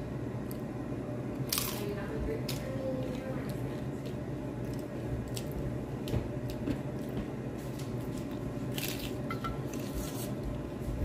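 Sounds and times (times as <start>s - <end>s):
person chewing crunchy food: 8.2s - 10.4s.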